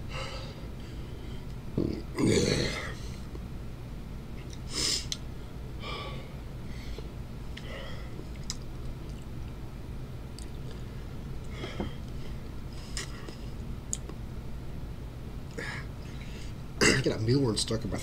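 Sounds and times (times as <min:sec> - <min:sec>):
lip clicks: 0:04.4 - 0:05.3, 0:08.3 - 0:09.6, 0:10.3 - 0:10.8, 0:12.9 - 0:14.2
faint chewing: 0:08.3 - 0:09.6, 0:10.3 - 0:12.2.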